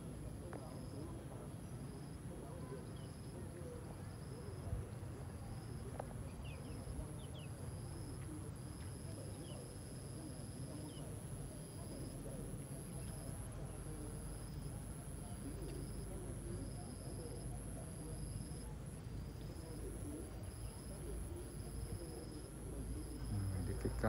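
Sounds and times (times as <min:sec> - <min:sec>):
insects trilling: 0:00.6 - 0:24.0
insects whining: 0:05.4 - 0:24.0.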